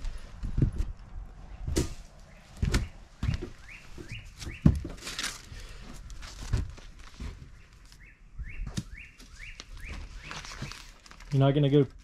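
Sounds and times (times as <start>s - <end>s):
footsteps on wooden boards: 0.0s - 7.6s
rising bird chirps: 2.3s - 4.7s, 7.5s - 10.9s.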